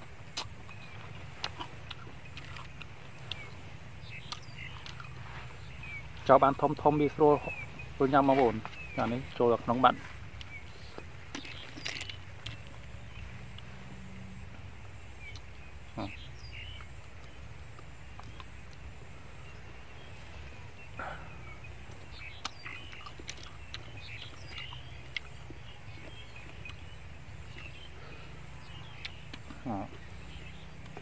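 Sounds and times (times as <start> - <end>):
birds chirping faintly: 0.0 - 31.0
low outdoor hum: 0.0 - 31.0
eating sounds: 0.1 - 13.9, 20.9 - 31.0
snail shells clicking: 11.3 - 12.7, 22.3 - 25.4.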